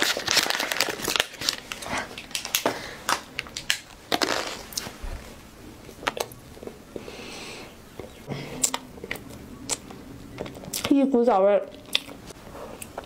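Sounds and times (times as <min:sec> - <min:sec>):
wrapper crackling and rustling: 0:00.0 - 0:05.0.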